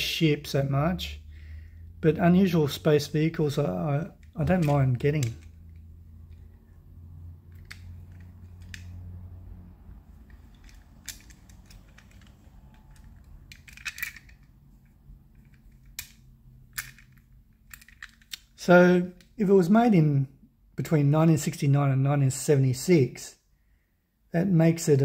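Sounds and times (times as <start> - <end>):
metal toy clicking and knocking: 4.1 - 6.4, 7.5 - 9.0, 10.2 - 14.6, 15.4 - 18.6.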